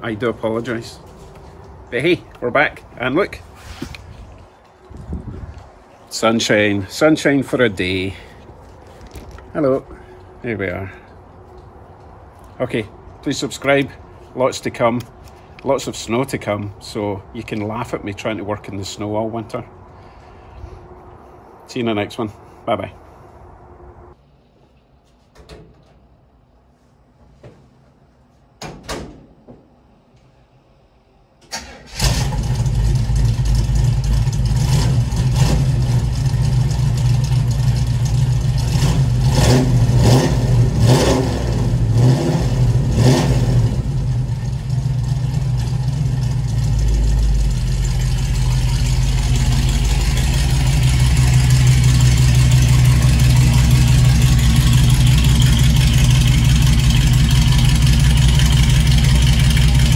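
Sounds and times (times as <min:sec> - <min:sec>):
engine starting and running: 0:31.4 - 0:59.9.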